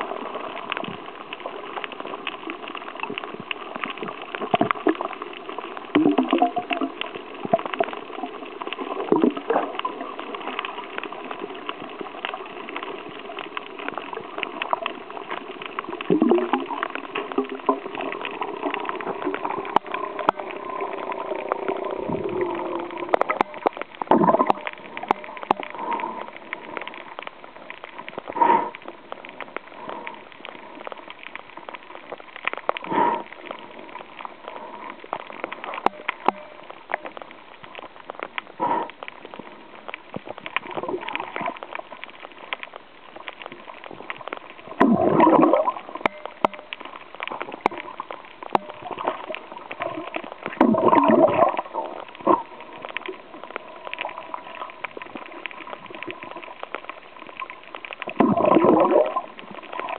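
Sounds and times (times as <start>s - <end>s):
small clicks: 0.0s - 59.9s
underwater gurgling and sloshing: 0.0s - 59.9s.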